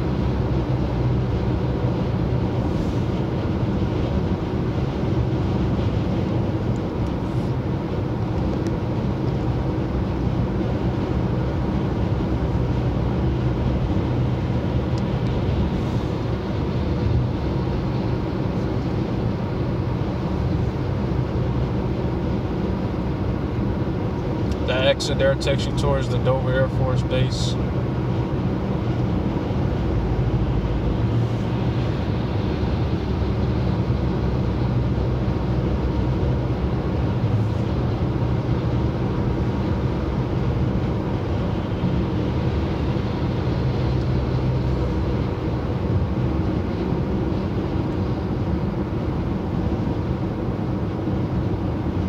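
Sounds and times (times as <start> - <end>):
car road noise at highway speed: 0.0 - 52.0.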